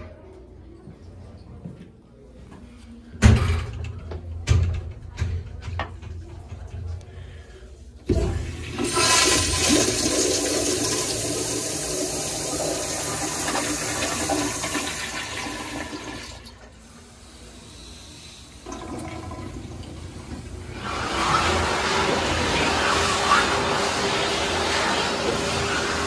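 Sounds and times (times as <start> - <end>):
toilet flushing: 8.1 - 26.0.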